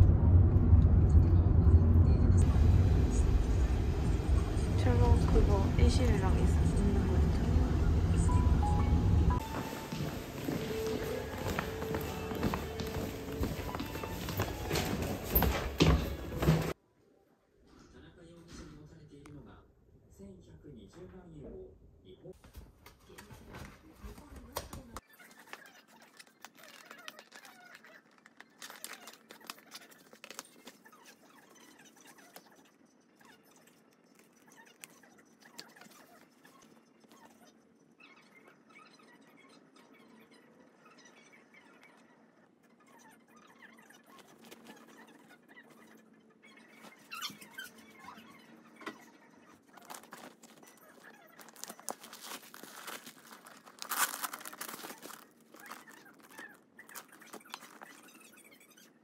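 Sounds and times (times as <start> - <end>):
tissue paper crinkling: 25.3 - 30.9, 49.7 - 58.1
handbag being handled: 49.8 - 58.1.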